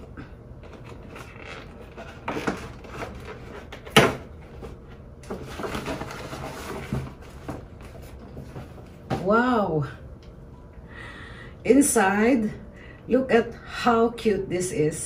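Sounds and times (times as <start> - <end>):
paper bag rustling and crinkling: 0.6 - 9.0.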